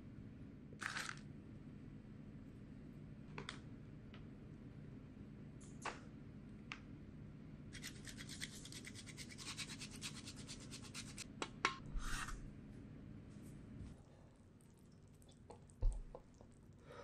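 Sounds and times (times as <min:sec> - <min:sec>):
cheese grating on a grater: 0:07.8 - 0:11.2
short scrape: 0:11.9 - 0:12.4.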